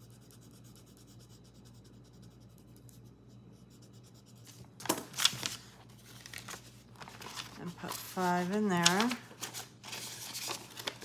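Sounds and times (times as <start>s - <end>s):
pen scribbling on paper: 0.0s - 4.5s
plastic pouch rustling: 4.8s - 11.0s.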